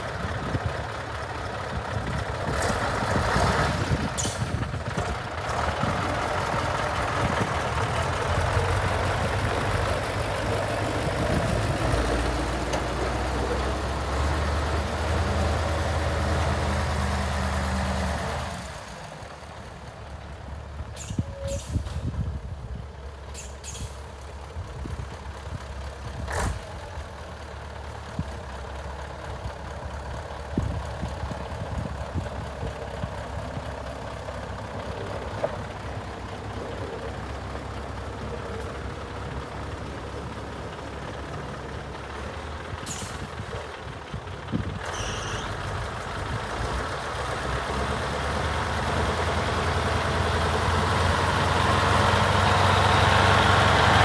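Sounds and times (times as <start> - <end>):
diesel truck engine: 0.0 - 54.0
air brake hisses and squeaks: 21.0 - 22.0, 23.3 - 24.0, 42.8 - 43.2, 44.9 - 45.6.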